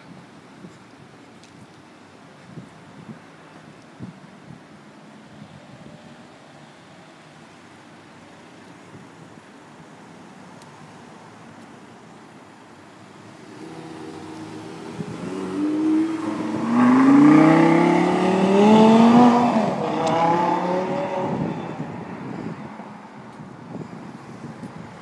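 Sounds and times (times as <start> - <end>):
sports car engine accelerating: 13.4 - 21.5.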